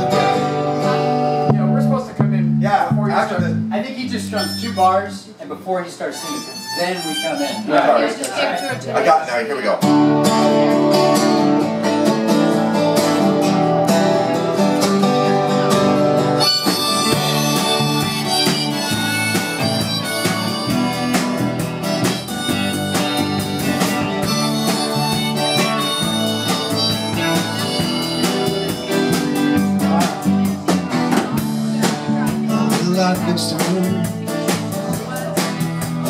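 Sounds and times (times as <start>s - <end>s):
guitars strumming chords: 0.0s - 5.1s, 9.8s - 36.0s
harmonica melody: 0.0s - 5.3s, 6.0s - 9.2s, 15.5s - 30.6s.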